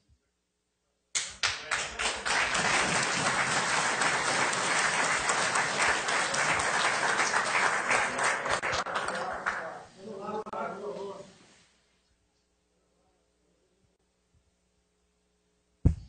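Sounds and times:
audience applauding: 1.2s - 9.9s.

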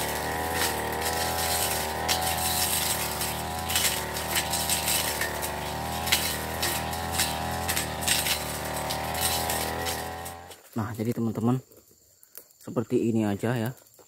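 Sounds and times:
brush cutter engine running: 0.0s - 10.6s
cutting head striking twigs: 0.0s - 10.6s.

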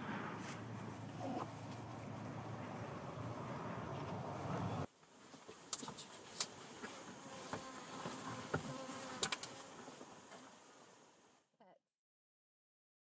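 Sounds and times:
soft outdoor hiss: 0.0s - 11.8s
insects buzzing: 5.1s - 11.4s.

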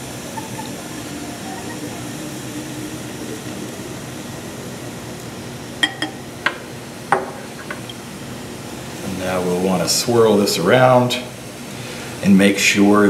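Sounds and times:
steady background hum: 0.0s - 13.0s
glassware clinking: 5.8s - 8.0s.

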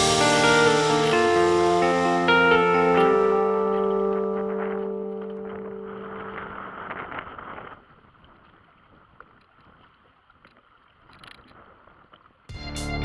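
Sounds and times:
background music: 0.0s - 6.7s, 12.5s - 13.0s
wind and water on a boat: 3.7s - 12.5s
faint ticks: 9.2s - 12.3s.

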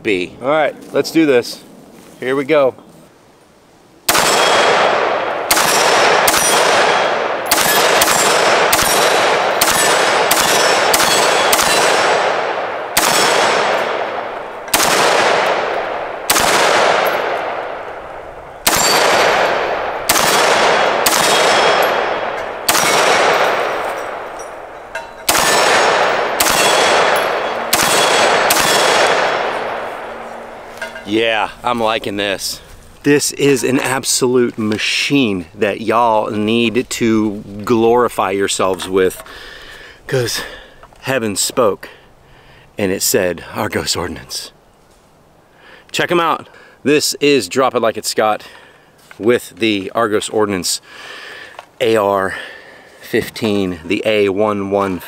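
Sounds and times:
rifle shots with ringing tail: 4.1s - 30.8s.

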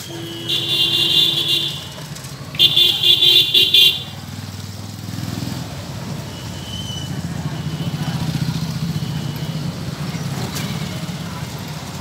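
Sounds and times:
vehicle horn honking: 0.0s - 1.9s, 2.6s - 4.1s
passing traffic rumble: 0.0s - 12.0s.

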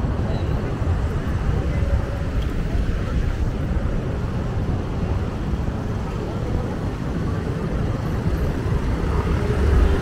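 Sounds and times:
motorcycle and car engines passing: 8.4s - 10.0s.

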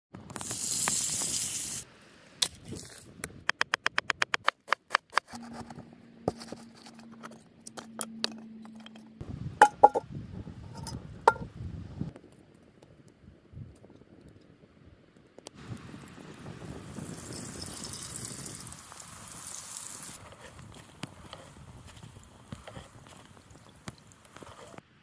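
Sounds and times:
sharp clicks and taps: 3.2s - 5.4s
meat sizzling in a skillet: 16.8s - 20.2s.

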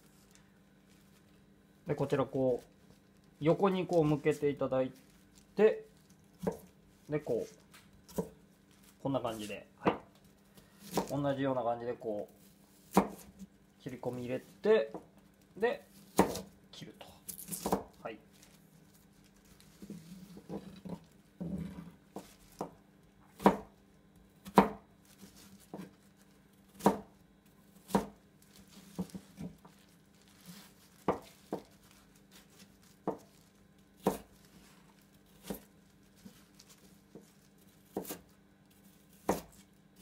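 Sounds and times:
knife chopping on plastic board: 6.4s - 6.7s, 8.1s - 8.4s, 9.8s - 10.2s, 10.8s - 11.2s, 12.9s - 13.5s, 16.1s - 16.5s, 17.6s - 18.0s, 22.1s - 23.8s, 24.4s - 24.9s, 25.6s - 26.0s, 26.7s - 27.2s, 27.8s - 28.2s, 28.8s - 29.7s, 30.6s - 33.4s, 34.0s - 34.4s, 35.3s - 38.3s, 39.1s - 40.0s.

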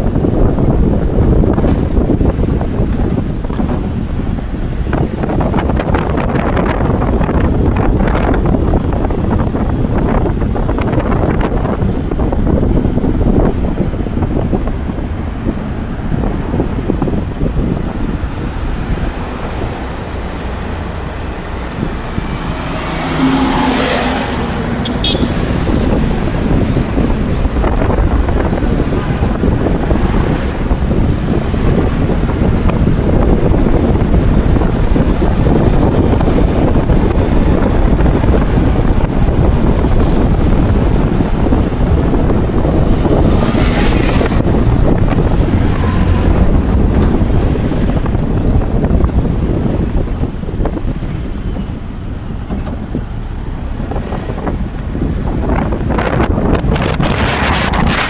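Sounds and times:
low road rumble: 0.0s - 58.0s
passing traffic: 0.0s - 58.0s
wind buffeting microphone: 0.0s - 58.0s.

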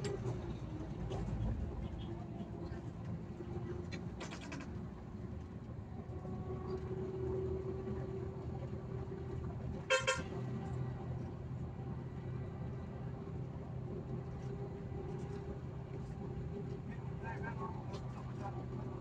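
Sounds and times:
bus engine running: 0.0s - 19.0s
bus horn toot: 9.8s - 10.5s.

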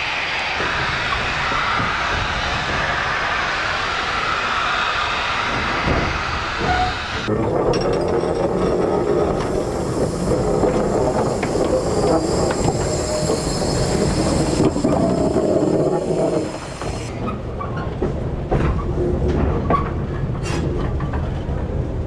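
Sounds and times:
steam locomotive rolling on rails: 0.0s - 22.0s
steady hiss: 9.4s - 17.1s
faint wheel squeal: 11.3s - 17.8s.

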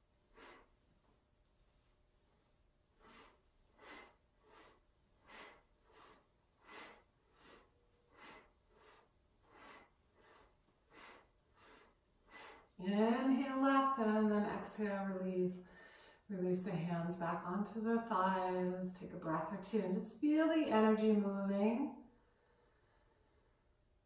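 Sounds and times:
woman breathing rhythmically: 0.1s - 1.2s, 2.8s - 12.8s, 15.6s - 16.3s, 22.2s - 24.0s.

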